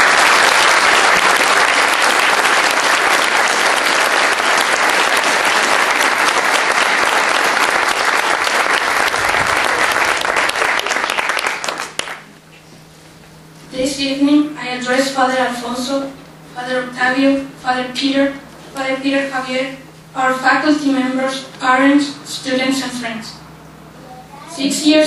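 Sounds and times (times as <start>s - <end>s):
audience applauding: 0.0s - 12.3s.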